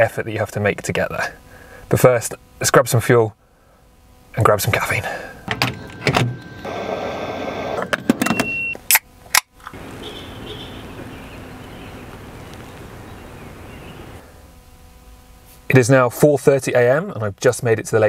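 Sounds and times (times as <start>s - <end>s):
vehicles humming in car park: 4.7s - 14.4s
short electronic beep: 5.7s - 8.8s
steady hiss: 9.8s - 18.0s.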